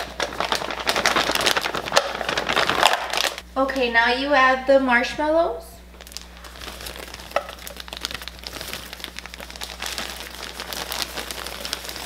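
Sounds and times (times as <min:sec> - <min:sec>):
marshmallows pattering into foil pan: 0:00.0 - 0:03.4, 0:06.0 - 0:12.0
plastic bag crinkling: 0:00.0 - 0:03.4, 0:05.9 - 0:12.0.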